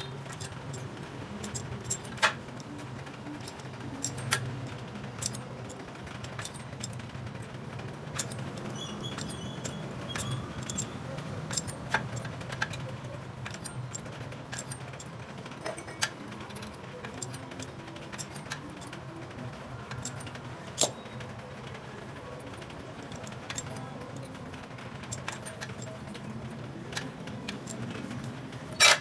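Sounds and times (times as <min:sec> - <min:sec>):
metal tool clicks and taps: 0:05.2 - 0:07.0, 0:08.1 - 0:15.1, 0:15.9 - 0:19.0.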